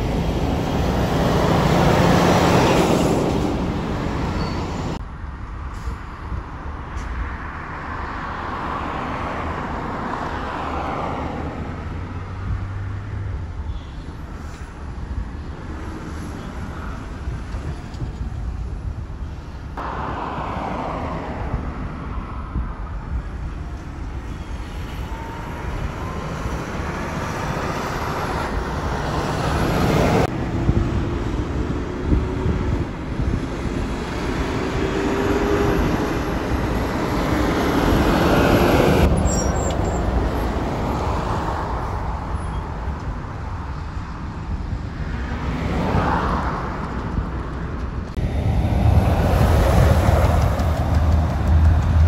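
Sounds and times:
diesel trucks driving past: 0.0s - 5.0s, 19.7s - 52.0s.

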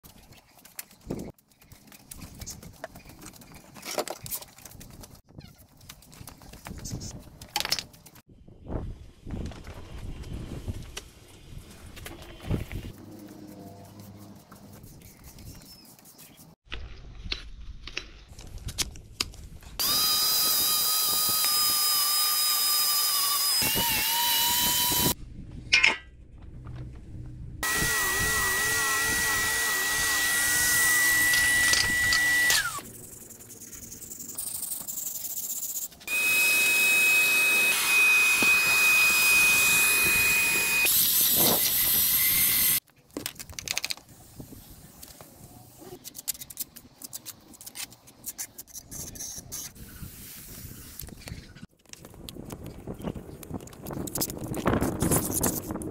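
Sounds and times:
drill with paddle mixer stirring: 19.8s - 25.2s, 27.6s - 32.9s, 36.0s - 42.8s
power tool motor whine: 19.8s - 25.2s, 27.6s - 32.8s, 36.1s - 42.8s.

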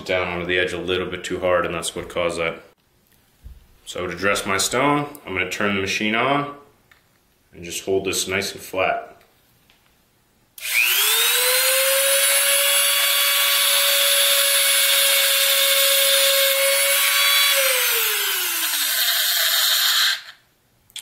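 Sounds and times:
rotary tool whining: 10.6s - 20.4s
stone grinding hiss: 18.7s - 20.4s.

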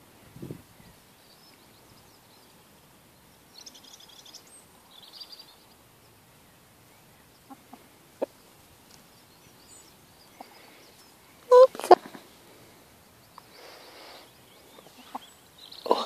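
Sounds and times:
faint high bird chirps: 3.5s - 6.2s.

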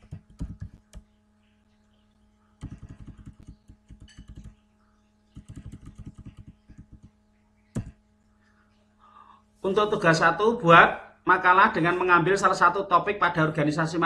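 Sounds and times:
typing on computer keyboard: 0.0s - 1.0s, 2.6s - 4.6s, 5.4s - 7.1s.

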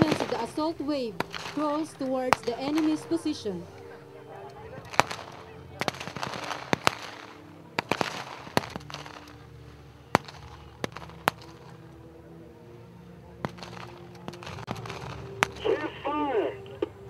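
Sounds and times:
rifle shots: 0.0s - 3.1s, 4.9s - 9.4s.

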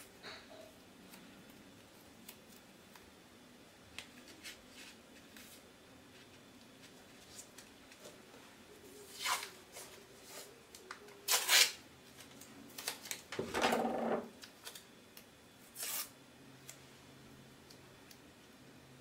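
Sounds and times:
tape ripping: 9.1s - 9.6s, 11.2s - 11.8s, 15.8s - 16.1s.

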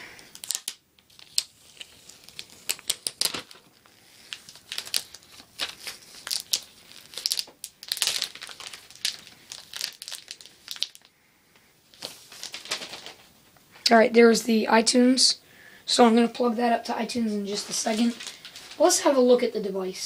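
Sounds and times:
plastic film crinkling: 0.0s - 11.2s, 11.9s - 13.4s, 17.3s - 19.4s.

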